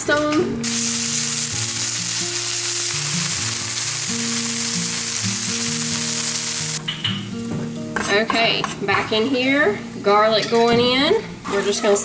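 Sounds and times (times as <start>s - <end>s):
background music with held notes: 0.0s - 10.5s
chicken sizzling on a griddle: 0.6s - 6.8s.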